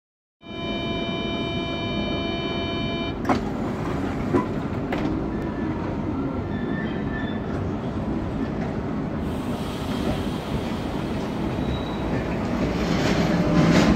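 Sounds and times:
train door warning tone: 0.4s - 3.3s
parked train hum: 0.4s - 13.9s.

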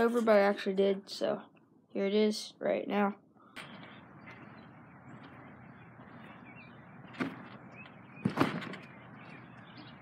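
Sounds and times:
trampoline bouncing thumps: 7.0s - 9.9s.

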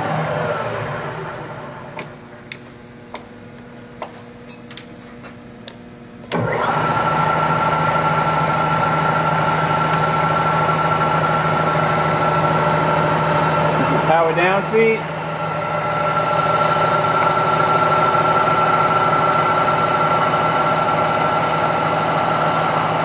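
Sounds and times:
milling machine motor humming: 6.3s - 23.0s.

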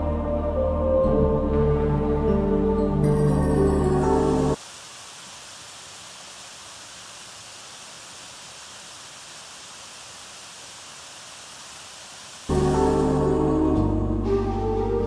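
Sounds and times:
background music: 0.0s - 4.6s, 12.5s - 15.0s
waterfall rushing: 3.9s - 13.9s.

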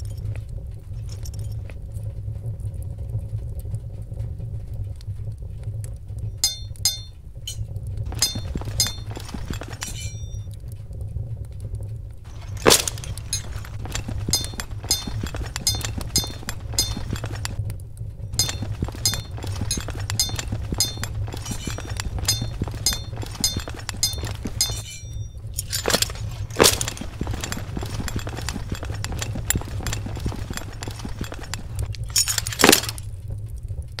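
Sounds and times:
dense crackling: 0.0s - 34.0s
steady low hum: 0.0s - 34.0s
small ringing clinks: 6.4s - 10.5s, 12.3s - 17.6s, 18.4s - 33.1s.

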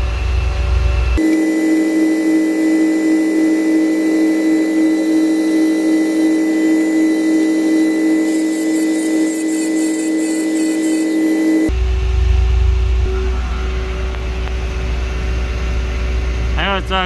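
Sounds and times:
engine running steadily: 11.5s - 17.0s.

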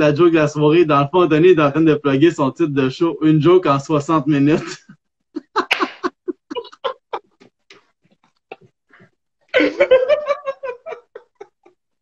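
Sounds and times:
men laughing: 4.5s - 7.4s, 9.5s - 11.9s.

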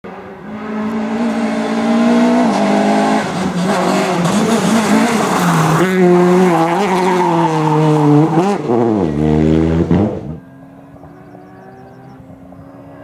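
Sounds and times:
rally car engine at high revs: 0.1s - 13.0s
faint distant engine: 10.4s - 13.0s.

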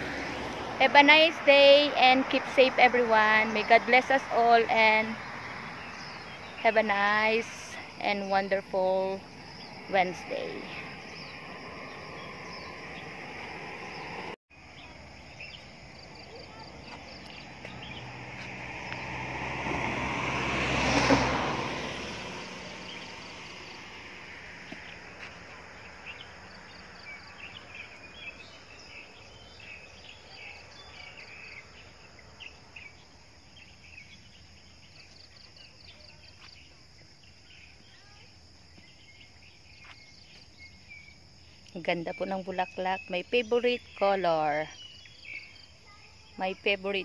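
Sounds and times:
vehicle passing: 0.0s - 36.7s
insects chirping: 0.0s - 47.0s.

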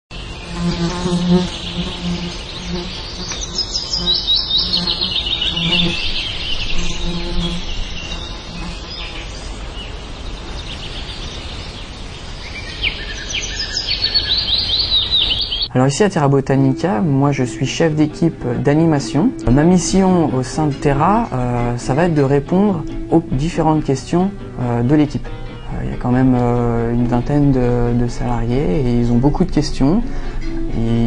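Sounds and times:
birds chirping: 0.1s - 31.0s
insect buzzing: 0.2s - 15.7s.

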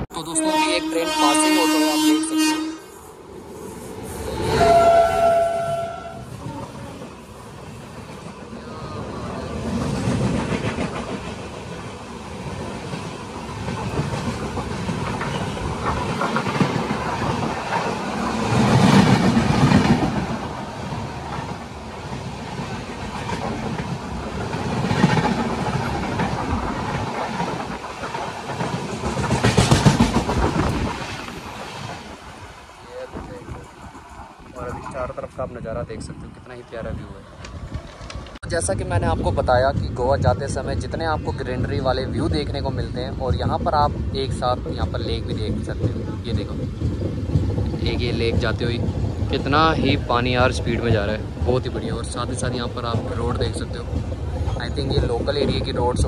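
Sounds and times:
train horn: 0.2s - 3.0s, 4.4s - 6.3s
train rumble and clickety-clack: 3.7s - 56.0s.

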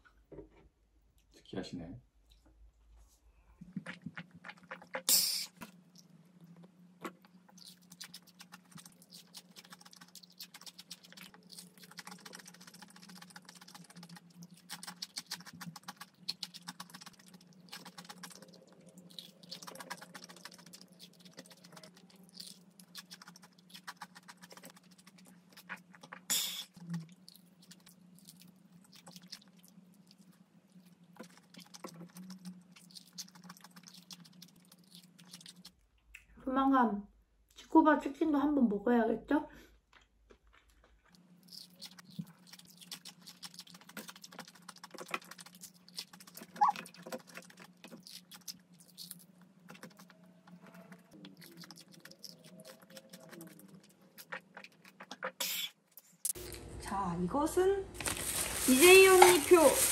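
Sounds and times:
crunchy fried chicken chewing: 3.7s - 35.8s, 39.8s - 55.4s, 58.0s - 59.9s
low steady hum: 56.3s - 59.9s.

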